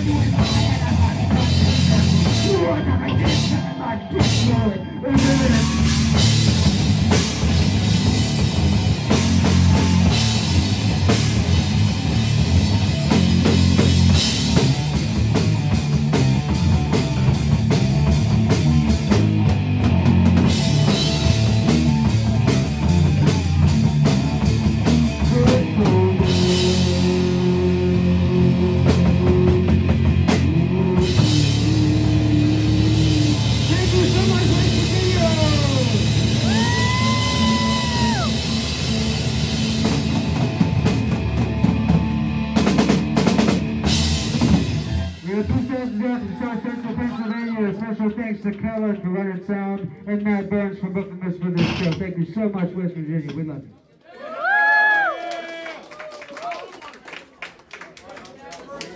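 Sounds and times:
heavy metal band playing live: 0.0 - 47.1.

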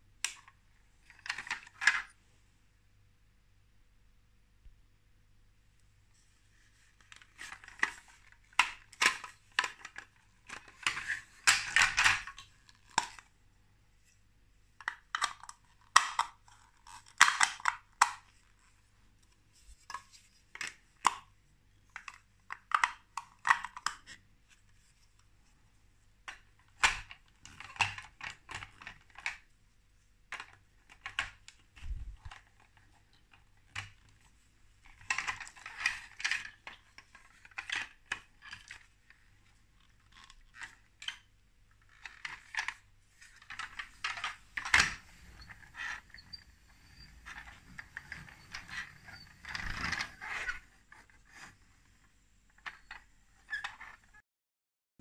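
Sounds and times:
plastic bricks clicking together: 7.5 - 13.3, 14.8 - 18.3.

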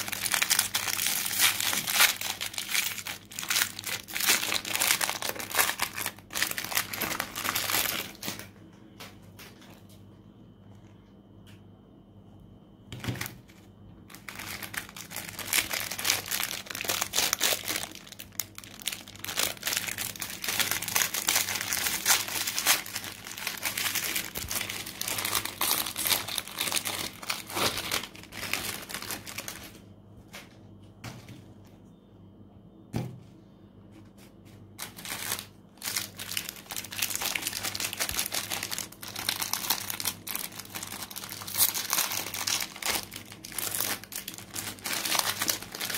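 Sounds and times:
foil wrappers crinkling and tearing: 0.0 - 8.5, 13.0 - 29.9, 34.8 - 45.9.

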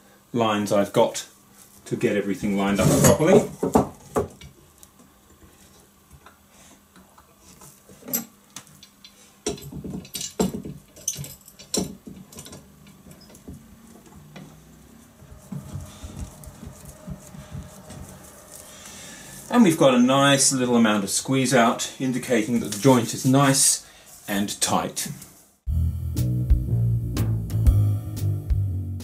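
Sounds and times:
metal clamps clinking on wood: 8.0 - 13.4.

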